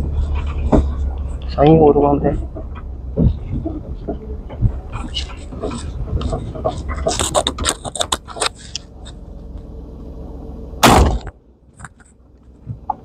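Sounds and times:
low vehicle rumble: 0.0s - 13.0s
shotgun blast: 10.8s - 11.3s.

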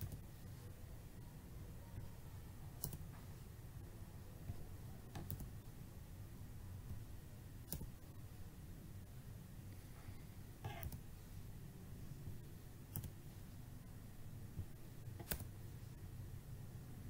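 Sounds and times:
keyboard and mouse clicks: 0.0s - 0.2s, 2.8s - 3.2s, 4.5s - 5.6s, 7.7s - 8.0s, 10.6s - 11.1s, 12.9s - 13.2s, 14.6s - 15.6s
low steady hum: 0.0s - 17.0s.

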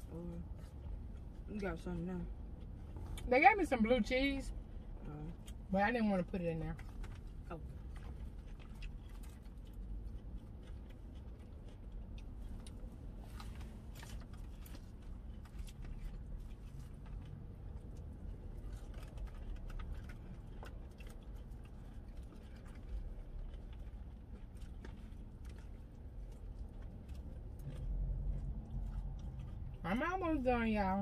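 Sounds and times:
low steady rumble: 0.0s - 31.0s
people chewing: 6.8s - 30.0s.

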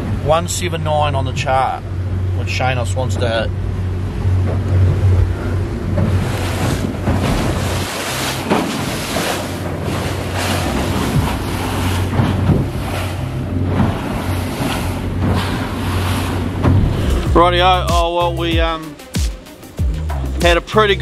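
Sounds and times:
low engine hum: 0.0s - 18.4s
water slapping against hull: 3.1s - 20.5s
wind buffeting microphone: 9.6s - 17.8s.

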